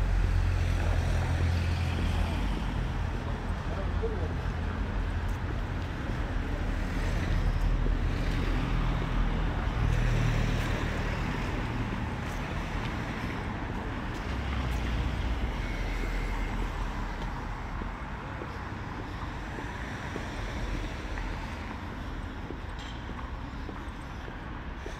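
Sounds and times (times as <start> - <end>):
road traffic noise: 0.0 - 24.9.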